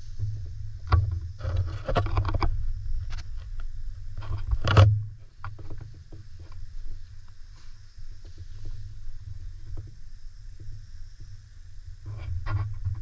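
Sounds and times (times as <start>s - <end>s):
clicks knocks and scraping: 0.2s - 3.6s, 4.2s - 6.6s, 12.1s - 13.0s.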